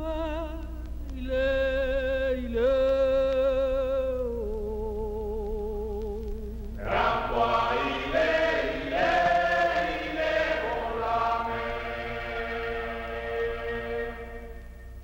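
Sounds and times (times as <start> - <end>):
choir-like music chords: 6.8 - 15.0.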